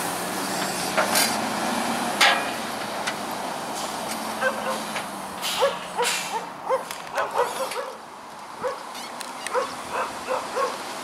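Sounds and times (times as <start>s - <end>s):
dog yapping: 5.6s - 8.0s, 8.6s - 8.8s, 9.5s - 10.8s.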